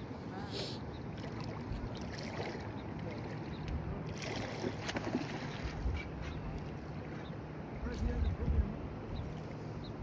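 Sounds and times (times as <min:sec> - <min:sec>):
wind on microphone: 0:07.8 - 0:09.3.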